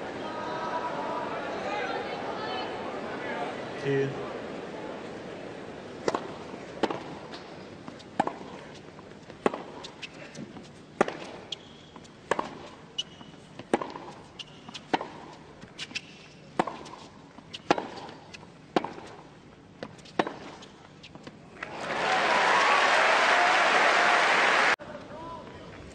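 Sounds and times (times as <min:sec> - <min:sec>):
faint crowd: 0:00.0 - 0:07.8, 0:21.5 - 0:25.9
racket striking tennis ball: 0:06.0 - 0:08.6, 0:09.3 - 0:11.6, 0:12.2 - 0:21.3
tennis ball bouncing: 0:06.0 - 0:21.4.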